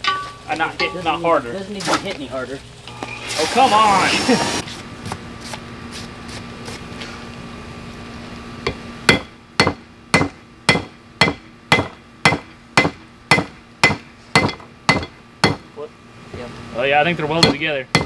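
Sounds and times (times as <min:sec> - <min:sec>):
hammer striking steel on anvil: 0:00.0 - 0:01.0, 0:08.7 - 0:15.7, 0:17.4 - 0:18.0.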